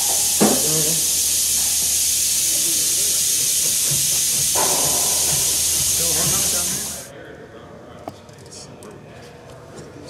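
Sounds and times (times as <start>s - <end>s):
steady hiss: 0.0s - 7.1s
faint voices: 2.3s - 10.0s.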